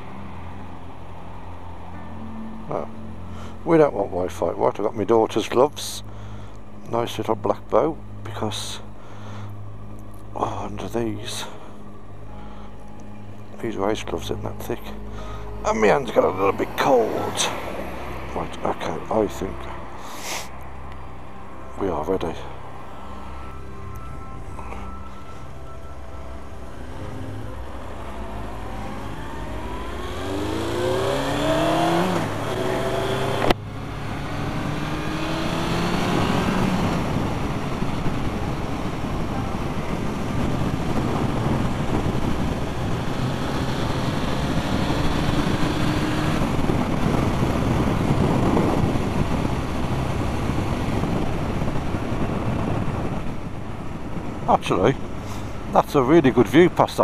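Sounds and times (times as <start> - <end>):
motorcycle engine revving: 27.7 - 53.4
wind noise: 28.8 - 57.0.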